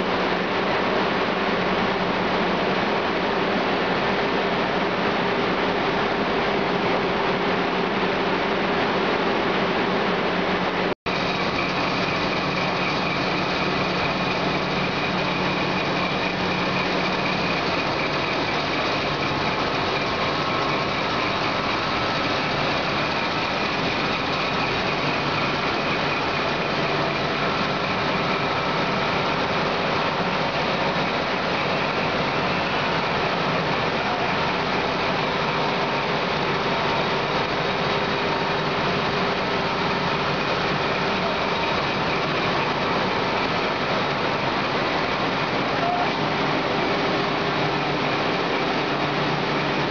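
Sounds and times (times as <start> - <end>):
carding machine whirring: 11.1 - 34.6.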